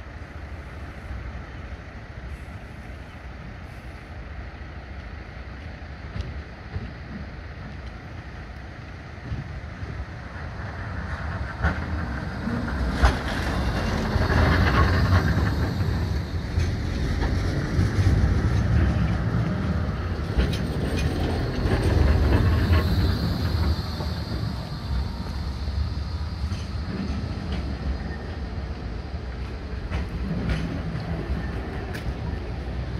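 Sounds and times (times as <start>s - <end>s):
tram wheels rumbling on rails: 0.0s - 32.9s
high whine: 20.4s - 28.7s.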